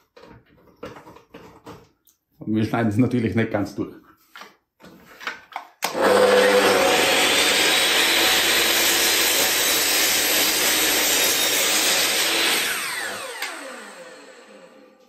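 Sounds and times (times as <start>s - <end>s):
mitre saw cutting chipboard: 5.9s - 14.9s.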